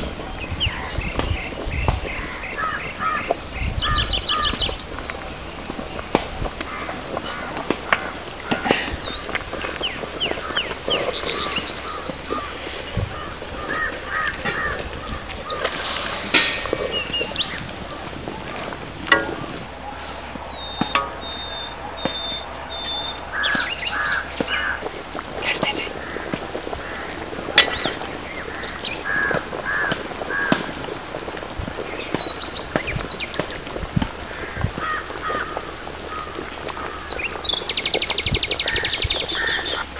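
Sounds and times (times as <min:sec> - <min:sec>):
birds chirping: 0:00.0 - 0:39.9
curry boiling and crackling: 0:00.0 - 0:39.9
sharp crack: 0:14.3 - 0:22.9, 0:23.5 - 0:31.4
metal spatula scraping iron pot: 0:15.6 - 0:17.2, 0:19.0 - 0:21.7, 0:27.5 - 0:28.0.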